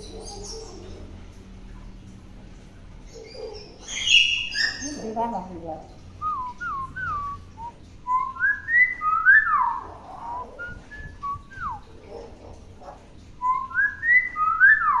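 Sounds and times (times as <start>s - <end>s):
bird whistling: 6.2s - 11.9s, 13.4s - 15.0s.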